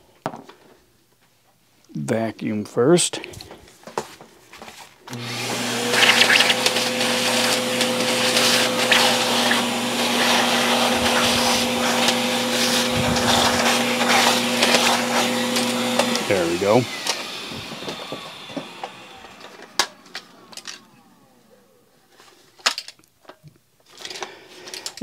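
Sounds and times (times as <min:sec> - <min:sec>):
vacuum cleaner running: 0:05.1 - 0:22.0.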